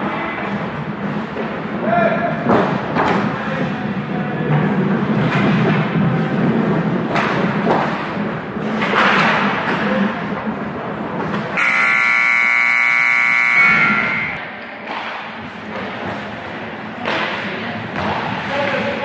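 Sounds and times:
arena game buzzer: 0:11.6 - 0:14.4.

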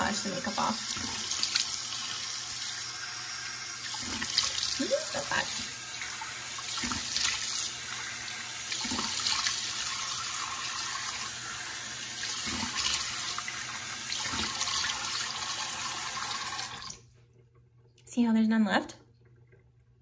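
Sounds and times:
tap running into sink: 0:06.7 - 0:07.6.

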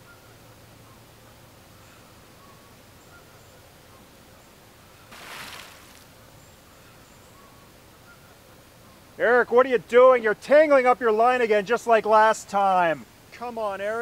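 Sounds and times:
faint bird chirps: 0:00.0 - 0:09.2
bucket splashing in lake water: 0:05.1 - 0:06.1.

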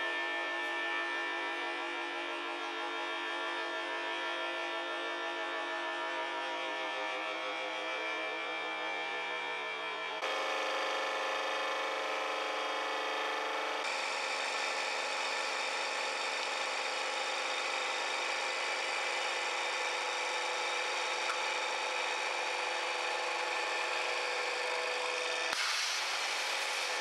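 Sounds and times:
hydraulic press running: 0:10.2 - 0:27.0.

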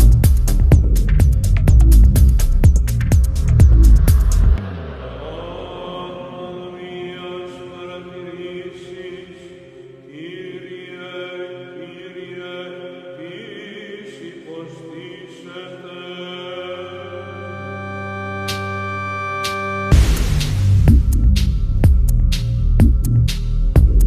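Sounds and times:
background music with held tones: 0:16.3 - 0:24.0.

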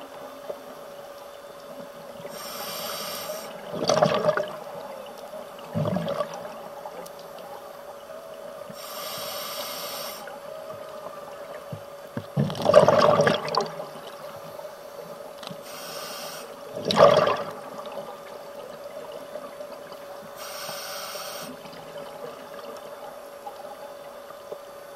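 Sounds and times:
faint steady hum: 0:00.0 - 0:24.9
regulator inhalation hiss: 0:02.3 - 0:03.6, 0:08.7 - 0:10.4, 0:15.6 - 0:16.6, 0:20.4 - 0:21.6
exhaled bubbles gushing: 0:03.5 - 0:07.0, 0:12.1 - 0:14.4, 0:16.7 - 0:20.1.

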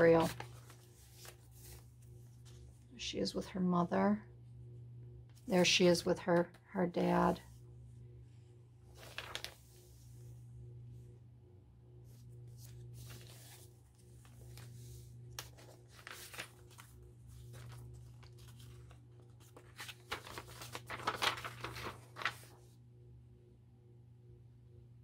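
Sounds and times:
paper pages rustling and crinkling: 0:00.0 - 0:02.9, 0:08.9 - 0:10.2, 0:12.1 - 0:22.7
steady low hum: 0:00.0 - 0:25.0.

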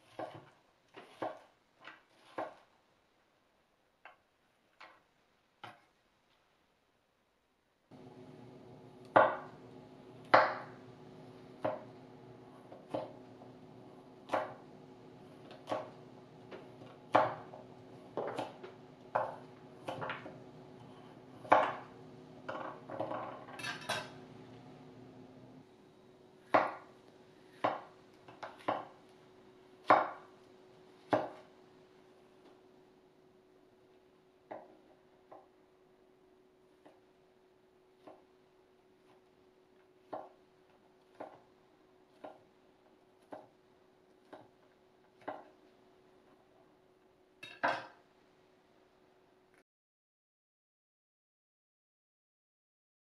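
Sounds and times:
knife cutting on wooden board: 0:00.0 - 0:02.6.

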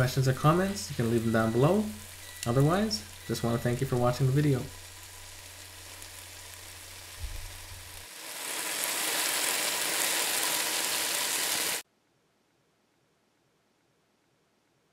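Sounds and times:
chicken sizzling on grill plate: 0:00.0 - 0:11.8.

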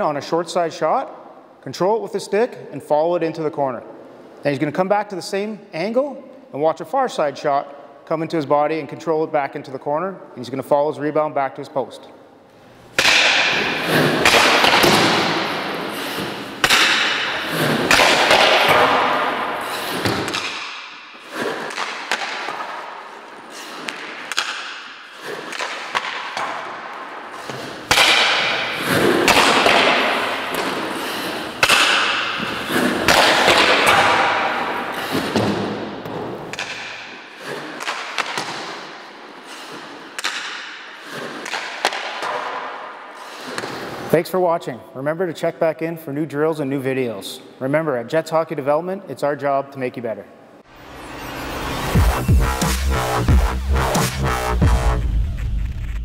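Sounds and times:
pucks knocking off goalie pads: 0:13.0 - 0:44.0
skate blades scraping ice: 0:13.6 - 0:35.7, 0:37.4 - 0:40.4, 0:41.0 - 0:42.5.

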